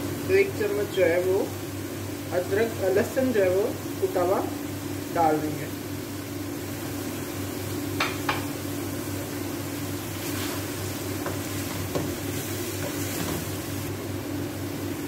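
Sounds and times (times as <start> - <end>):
meat sizzling in a pan: 0.0 - 15.0
wooden spatula knocking on pan: 8.0 - 8.5, 11.2 - 12.2.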